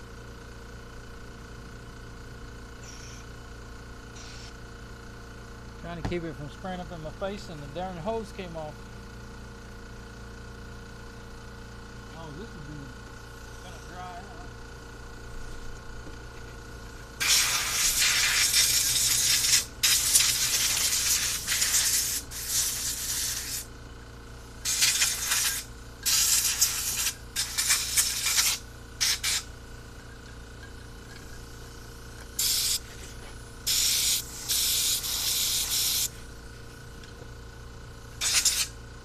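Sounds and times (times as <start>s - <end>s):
pressurized spray hissing: 17.2s - 23.6s, 24.6s - 29.4s, 32.4s - 32.8s, 33.7s - 36.1s, 38.2s - 38.7s.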